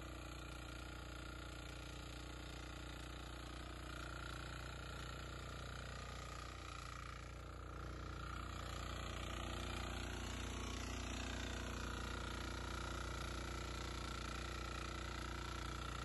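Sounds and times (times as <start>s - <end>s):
diesel tiller engine running: 0.0s - 16.0s
tines churning soil: 0.0s - 16.0s.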